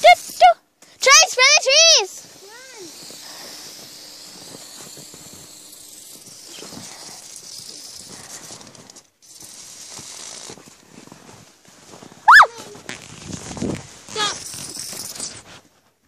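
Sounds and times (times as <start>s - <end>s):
aerosol can hissing: 1.1s - 10.6s.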